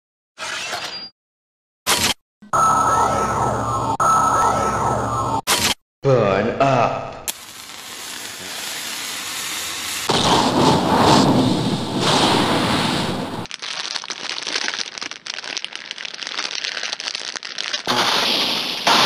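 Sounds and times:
dense crackling: 7.3s - 19.0s
rush of noise with deep low end: 10.1s - 13.5s.

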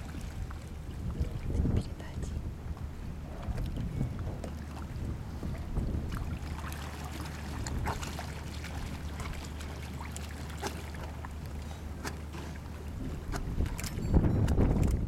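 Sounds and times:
water splashing and sloshing: 0.0s - 15.0s
sharp splashes: 6.1s - 11.4s.

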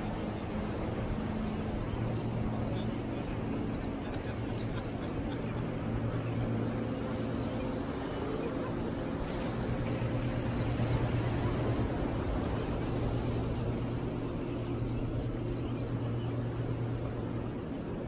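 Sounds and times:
outboard engines droning: 0.0s - 18.0s.

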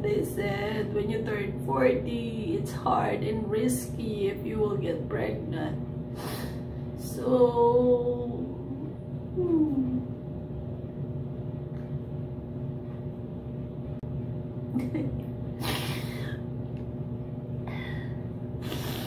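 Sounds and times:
steady low hum: 0.0s - 19.0s
woman sniffing and sobbing: 6.2s - 6.6s, 15.6s - 16.4s, 18.6s - 19.0s.

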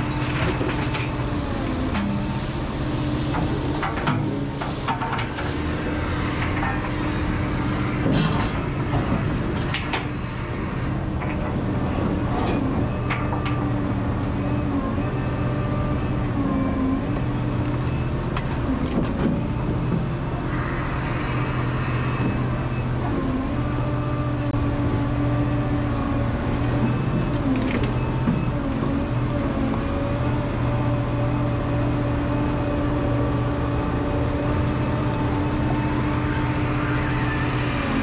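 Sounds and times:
excavator diesel engine running: 0.0s - 38.0s
hiss: 0.5s - 6.5s.

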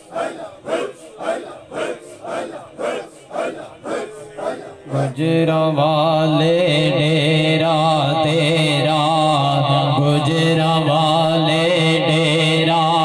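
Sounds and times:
group of men chanting rhythmically: 0.0s - 6.2s
man singing ornamented chant: 0.0s - 13.0s.

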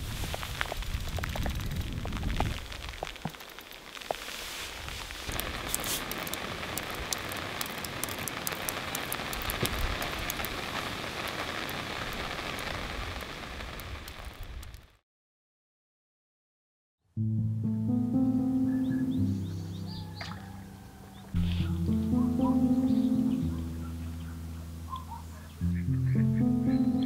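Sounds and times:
rain falling on a surface: 0.0s - 15.0s.

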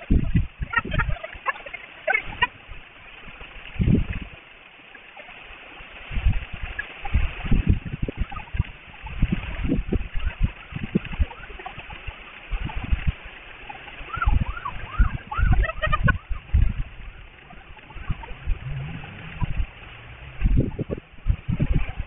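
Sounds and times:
wind buffeting microphone: 0.0s - 4.5s, 5.6s - 22.0s
rain hissing: 0.0s - 22.0s
high rising-and-falling calls: 13.6s - 21.2s.

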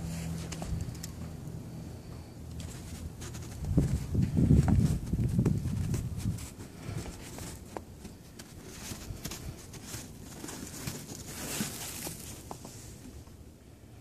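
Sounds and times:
snow crunching and patting: 2.6s - 12.9s.

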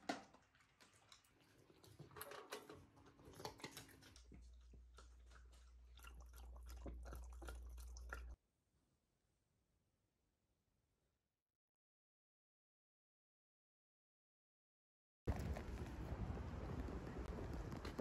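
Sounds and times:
dog lapping water: 0.0s - 8.4s.

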